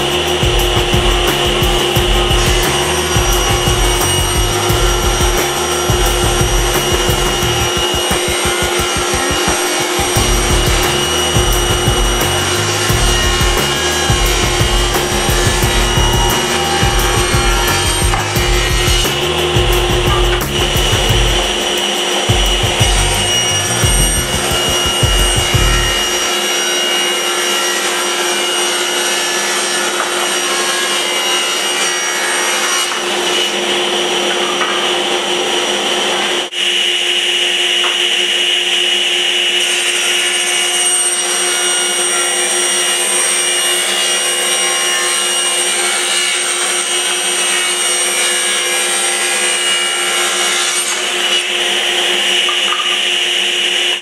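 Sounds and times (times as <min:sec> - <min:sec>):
steady machine hum: 0:00.0 - 0:26.6
power saw cutting wood: 0:00.0 - 0:54.0.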